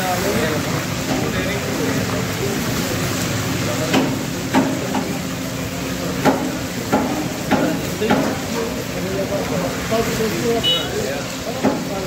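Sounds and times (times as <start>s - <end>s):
oil sizzling in a wok: 0.0s - 12.0s
metal spatula knocking on wok: 6.2s - 8.4s, 11.6s - 11.9s.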